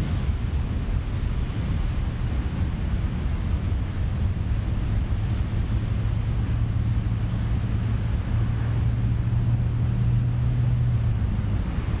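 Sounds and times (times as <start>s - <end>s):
stormy ocean surf: 0.0s - 12.0s
wind: 0.0s - 12.0s.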